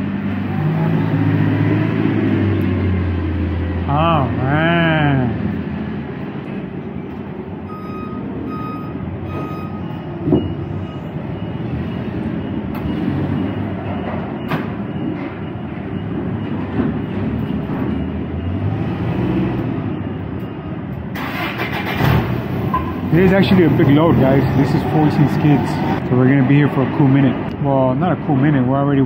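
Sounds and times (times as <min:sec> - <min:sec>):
forklift reversing alarm beeps: 0:06.5 - 0:21.4, 0:22.7 - 0:26.0.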